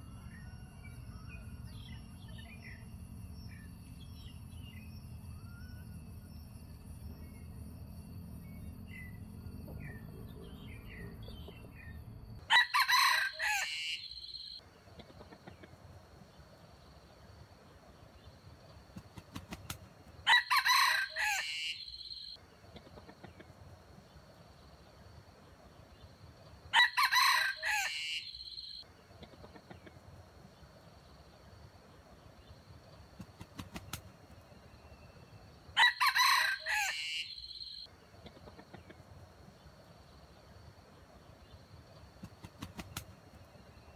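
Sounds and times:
rooster crowing: 12.4s - 14.5s, 20.2s - 22.3s, 26.7s - 28.8s, 35.8s - 37.9s.

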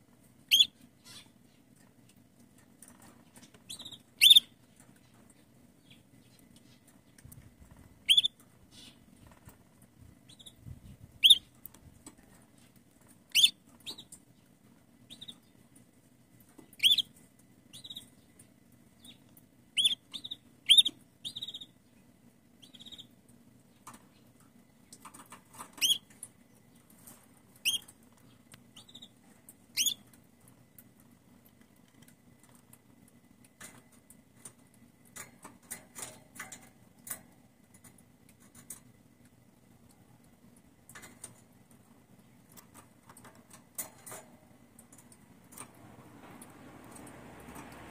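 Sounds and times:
canary contact calls: 0.5s - 1.6s, 8.0s - 9.5s.

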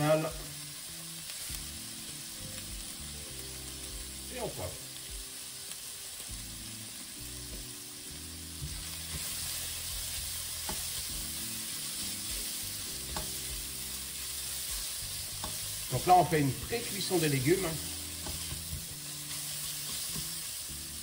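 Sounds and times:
vegetables sizzling in oil: 0.0s - 21.0s
spatula stirring and scraping pan: 8.4s - 21.0s.

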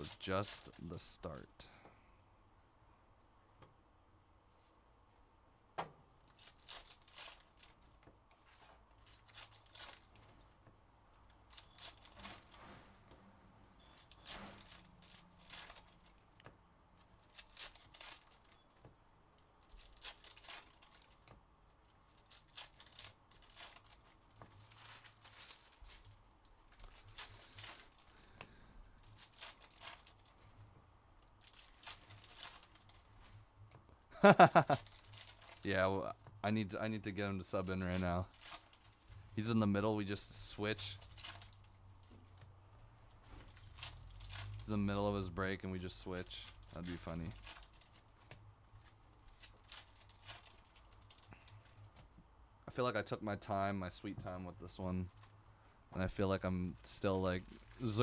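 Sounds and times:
foil wrappers tearing and crinkling: 0.0s - 1.4s, 6.2s - 8.0s, 8.6s - 10.4s, 11.2s - 12.9s, 13.7s - 16.2s, 17.1s - 18.8s, 19.6s - 21.3s, 22.1s - 30.6s, 31.2s - 33.4s, 34.2s - 36.1s, 37.4s - 42.4s, 43.2s - 51.8s, 56.8s - 58.0s.

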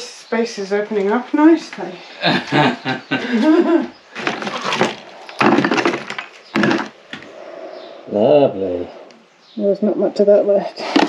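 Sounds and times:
rubble crunching and clattering: 4.1s - 7.3s.

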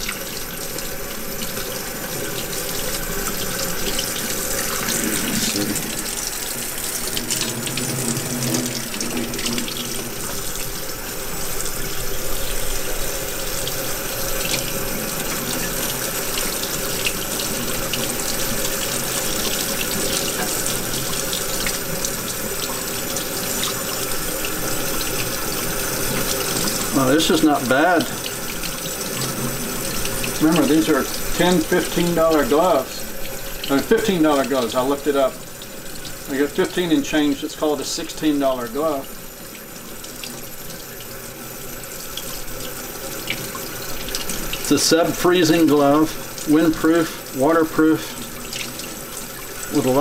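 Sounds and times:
tap water splashing: 0.0s - 34.9s, 42.0s - 44.8s, 47.9s - 50.0s.

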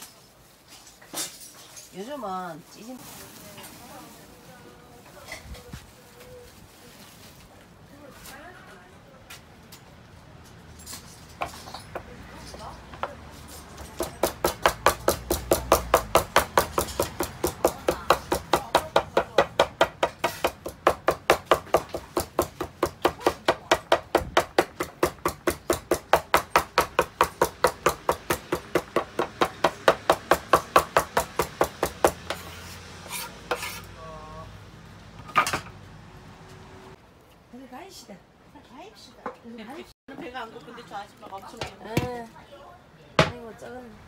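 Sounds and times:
knife chopping on wooden board: 14.0s - 33.8s.

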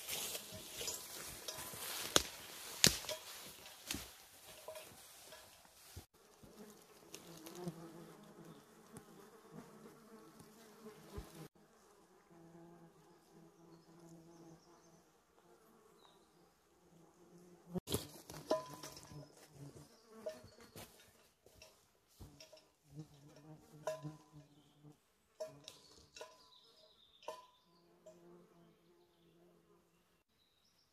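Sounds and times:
rustling: 0.0s - 7.9s.

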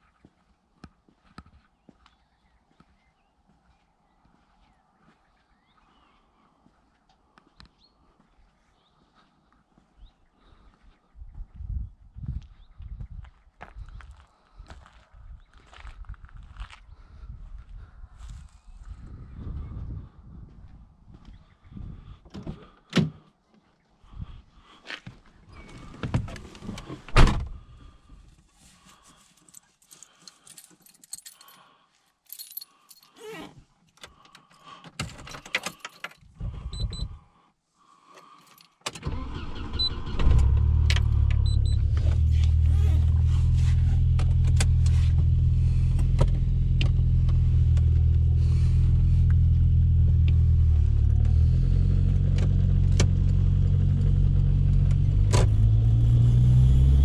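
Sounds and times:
car door shutting: 25.9s - 27.5s
keys jangling: 29.4s - 31.6s, 32.3s - 33.5s, 35.0s - 36.2s
car engine starting and idling: 38.9s - 57.0s.

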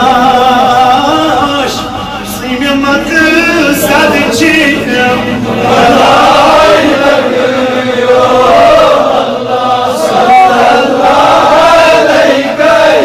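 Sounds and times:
man chanting devotional poem: 0.0s - 7.0s.

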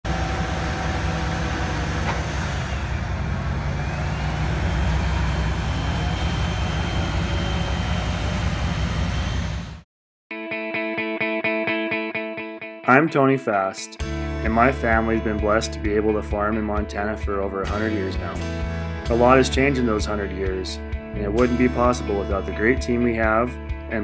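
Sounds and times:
diesel engine running: 0.0s - 9.8s, 17.6s - 22.5s
rhythmic guitar music: 10.3s - 24.0s.

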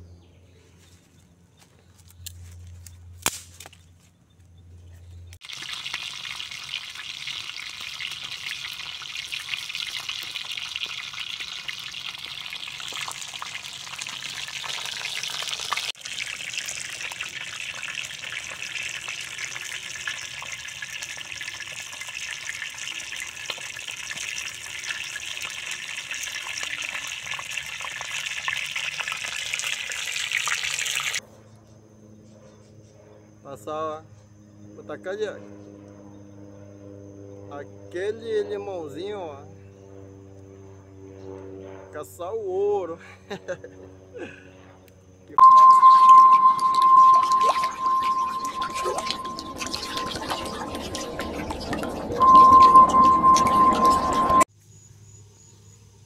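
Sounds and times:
sharp snap: 3.2s - 3.8s
fish frying in hot oil: 5.4s - 31.2s
low hum: 43.6s - 54.5s.

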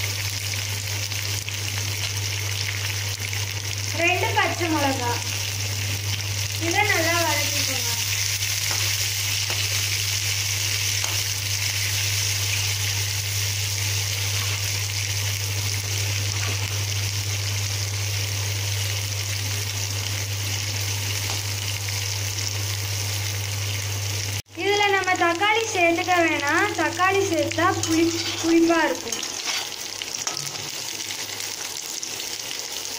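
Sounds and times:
vegetables sizzling in hot oil: 0.0s - 32.9s
ladle scraping pan: 27.8s - 30.8s.

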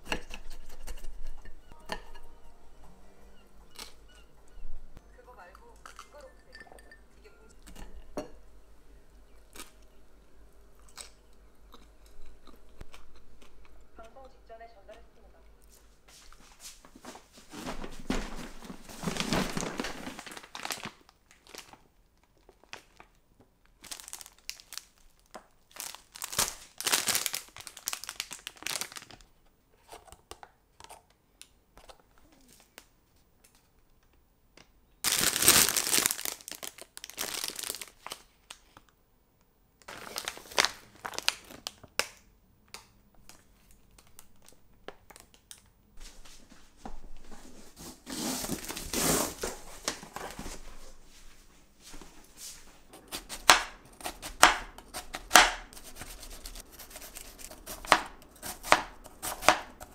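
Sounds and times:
plastic packaging crinkling: 17.5s - 29.3s, 35.0s - 38.9s, 39.8s - 42.3s, 48.1s - 50.6s.

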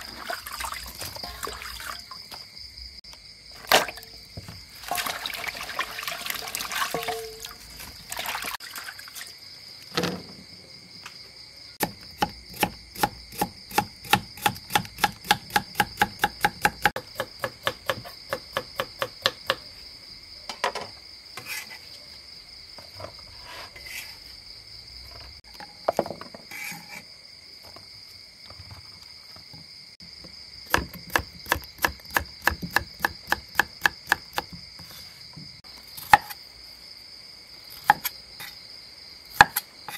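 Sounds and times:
insects chirring: 0.0s - 39.9s
hands swishing onions in water: 4.7s - 9.3s.

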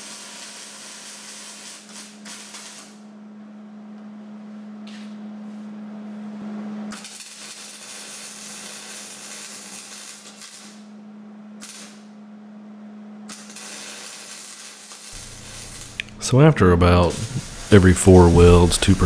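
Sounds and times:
arc welding crackling: 0.0s - 3.0s, 6.9s - 10.9s, 11.6s - 12.0s, 13.3s - 19.0s
low hum: 15.2s - 19.0s.

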